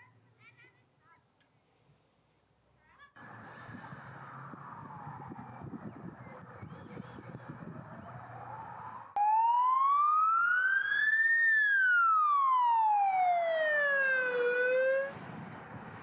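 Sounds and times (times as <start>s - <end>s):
siren wailing: 3.9s - 15.2s.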